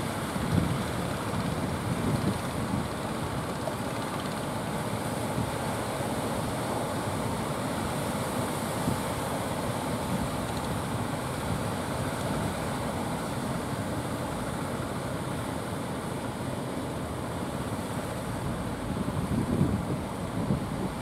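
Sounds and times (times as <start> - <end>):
wind on microphone: 0.4 - 3.0, 18.9 - 21.0.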